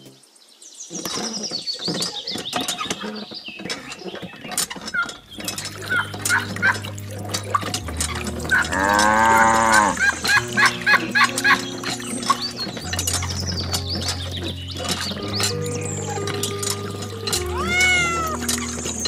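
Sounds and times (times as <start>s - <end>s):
cow mooing: 7.8s - 10.5s, 17.2s - 18.6s.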